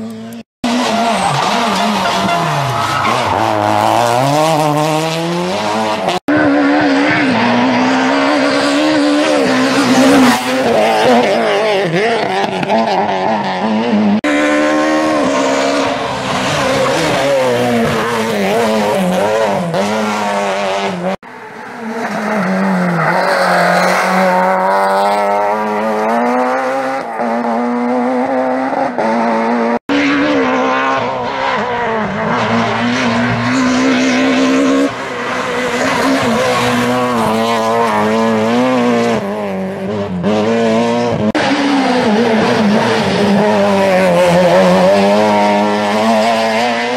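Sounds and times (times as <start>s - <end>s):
rally car engine revving: 0.0s - 46.9s.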